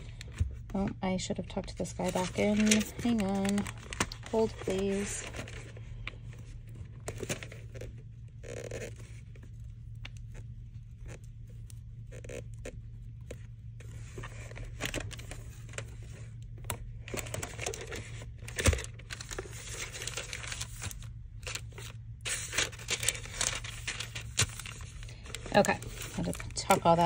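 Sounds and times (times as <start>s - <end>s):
tissue paper rustling: 2.0s - 6.0s, 17.1s - 27.0s.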